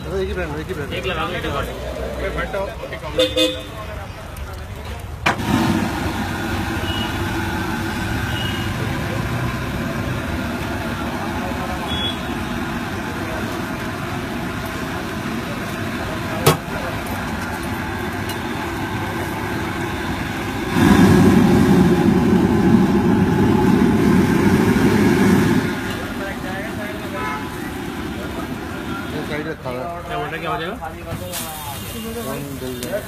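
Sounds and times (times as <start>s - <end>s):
street traffic noise: 0.0s - 33.0s
low rumble: 19.3s - 26.9s.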